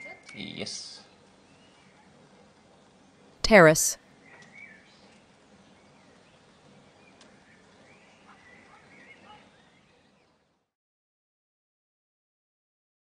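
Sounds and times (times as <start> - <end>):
small birds chirping: 0.0 - 2.2, 4.1 - 10.4.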